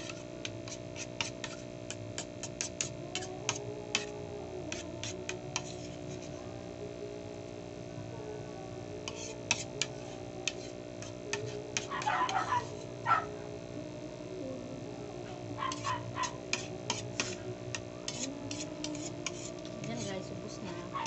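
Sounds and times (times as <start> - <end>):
spoon scraping ceramic plate: 0.0 - 4.1, 4.7 - 6.4, 9.0 - 12.9, 15.7 - 21.0.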